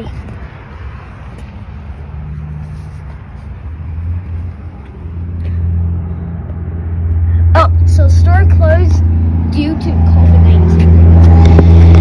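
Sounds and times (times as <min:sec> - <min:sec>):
car engine rumbling: 0:00.0 - 0:12.0.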